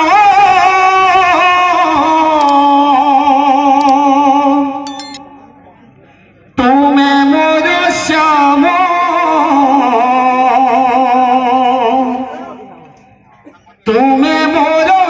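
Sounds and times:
man singing into a microphone: 0:00.0 - 0:04.8, 0:06.6 - 0:12.4, 0:13.8 - 0:15.0.

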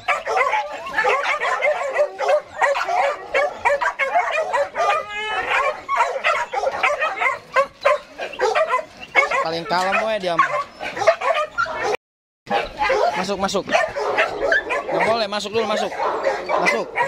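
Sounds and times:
dogs whining: 0:00.0 - 0:17.0
young dogs yipping and barking: 0:00.0 - 0:17.0.

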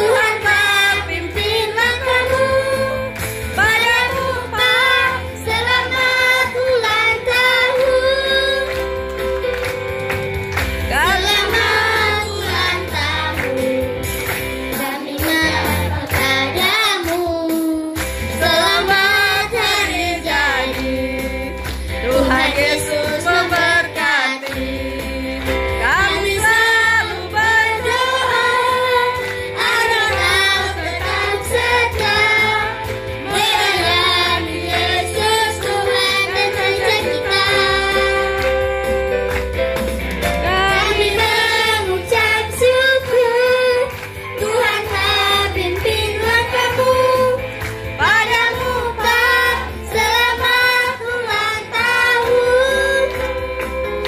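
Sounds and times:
children singing together: 0:00.0 - 0:08.7, 0:10.9 - 0:13.7, 0:18.4 - 0:21.0, 0:25.8 - 0:39.0, 0:40.4 - 0:47.4, 0:48.0 - 0:53.4
steady bass line: 0:00.0 - 0:16.5, 0:18.1 - 0:54.0
instrumental accompaniment: 0:00.0 - 0:54.0.

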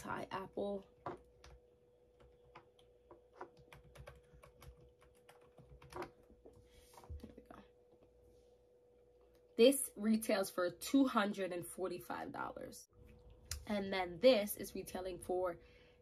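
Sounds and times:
faint steady hum: 0:00.0 - 0:16.0
keyboard tapping: 0:02.2 - 0:06.5.

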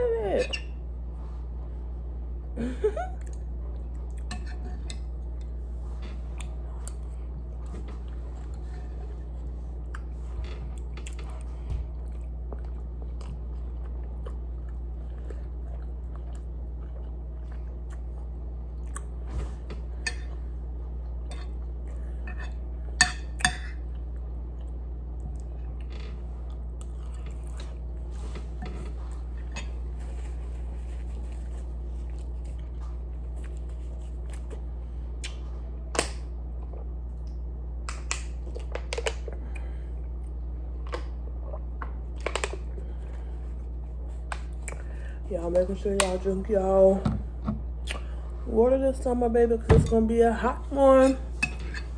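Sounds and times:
steady low hum: 0:00.0 - 0:51.9
chewing food: 0:09.7 - 0:19.3.

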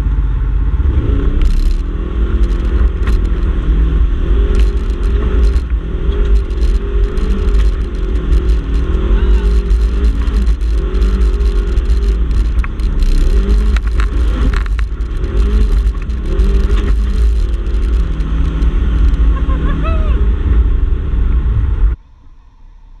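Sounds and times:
engine revving: 0:00.0 - 0:22.0.

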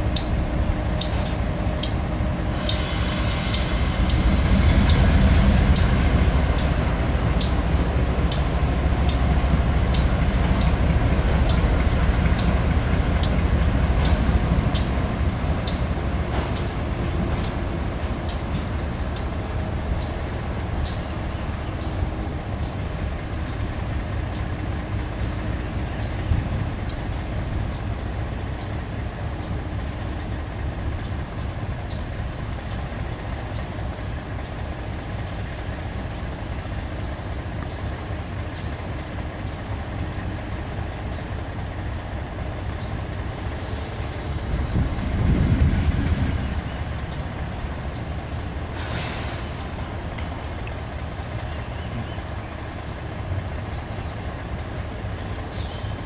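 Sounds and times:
diesel locomotive engine rumbling: 0:00.0 - 0:56.0
sharp clicks: 0:03.5 - 0:10.8.

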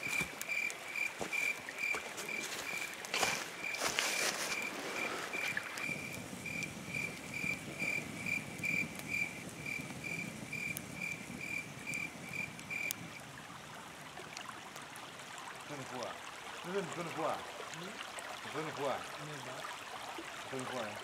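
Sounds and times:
insect chirping: 0:00.0 - 0:13.2
campfire crackling and popping: 0:00.0 - 0:21.0.

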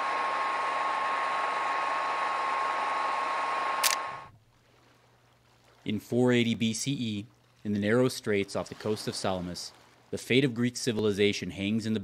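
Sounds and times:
sharp click: 0:03.8 - 0:04.2.

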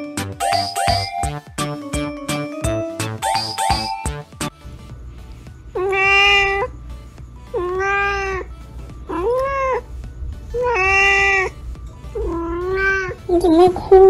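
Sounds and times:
cat meowing: 0:05.8 - 0:06.7, 0:07.5 - 0:08.5, 0:09.1 - 0:09.9, 0:10.5 - 0:13.3.

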